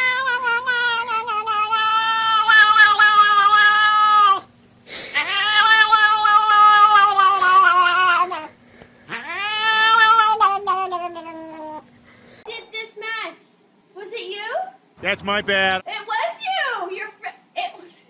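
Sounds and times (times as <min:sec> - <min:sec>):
cat yowling: 0:00.0 - 0:04.5, 0:05.1 - 0:08.5, 0:09.1 - 0:11.8.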